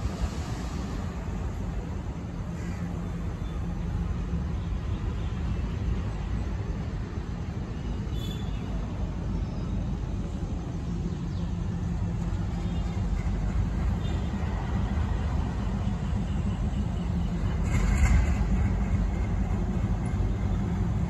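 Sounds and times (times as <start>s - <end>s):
distant locomotives idling: 9.7s - 21.0s.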